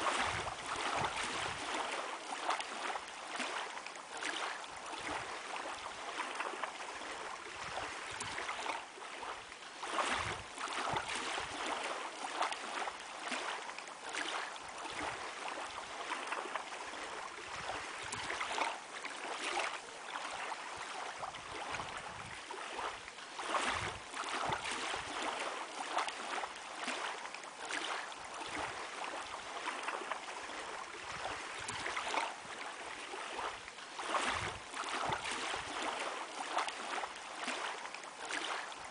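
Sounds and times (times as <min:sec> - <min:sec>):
water lapping against shore: 0:00.0 - 0:38.9.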